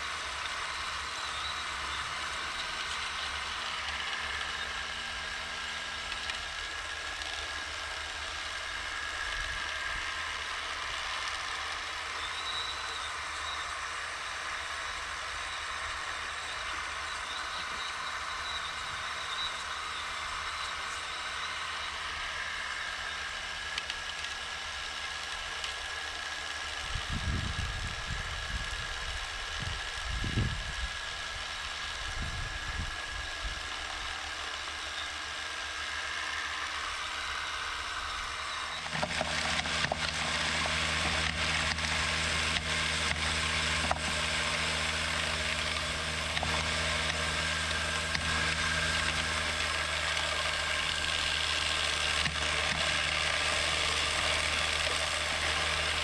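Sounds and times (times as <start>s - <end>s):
toy excavator whining: 0.0s - 56.0s
vibrating screener humming and rattling: 0.0s - 56.0s.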